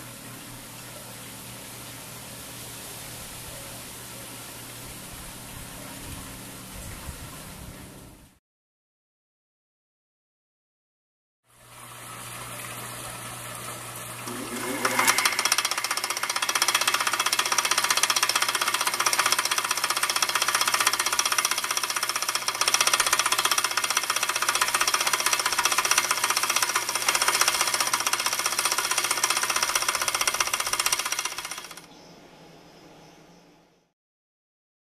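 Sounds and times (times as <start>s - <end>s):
drill press belt clattering: 14.3s - 31.9s.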